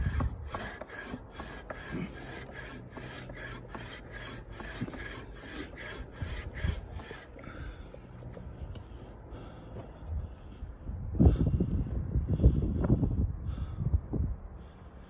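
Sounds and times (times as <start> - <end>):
pruning saw cutting branch: 0.0 - 7.6.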